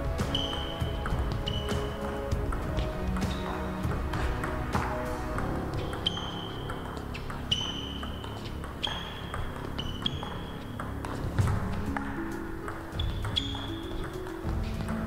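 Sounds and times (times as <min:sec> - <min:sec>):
background music: 0:00.0 - 0:15.0
table tennis ball clicking: 0:05.3 - 0:15.0.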